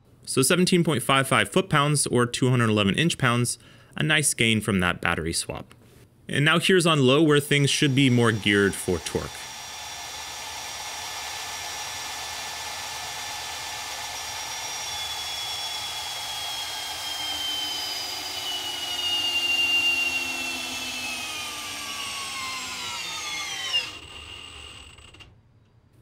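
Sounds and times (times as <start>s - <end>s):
hammer drill motor whining: 7.4s - 25.3s.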